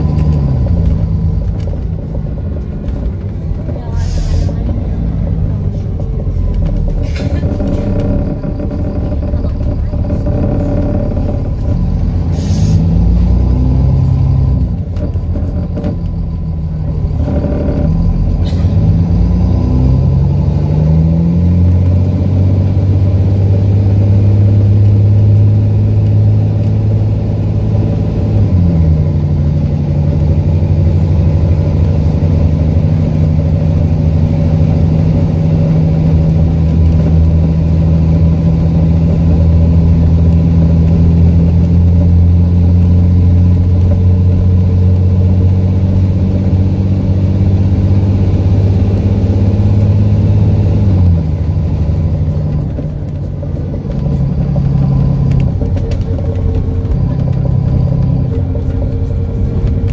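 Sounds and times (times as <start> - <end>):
bus engine with blown exhaust: 0.0 - 59.9.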